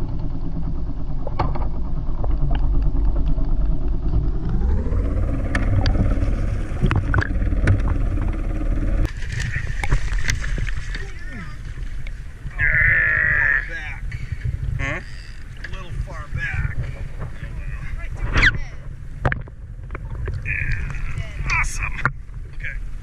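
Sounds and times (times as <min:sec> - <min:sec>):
muffled underwater engine rumble: 0:00.0 - 0:23.0
sharp clicks underwater: 0:01.2 - 0:04.2, 0:06.8 - 0:08.4, 0:19.2 - 0:22.6
water splashing at hull: 0:05.3 - 0:23.0.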